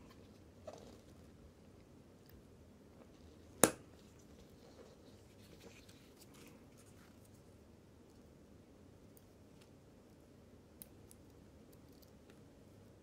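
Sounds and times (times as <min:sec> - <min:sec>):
faint handling noise: 0:03.0 - 0:08.3.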